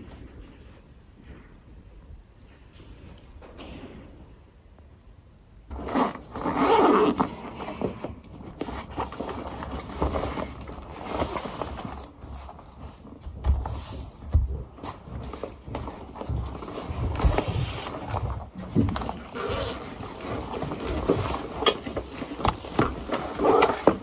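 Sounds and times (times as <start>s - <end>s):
backpack being rummaged through: 5.7s - 24.0s.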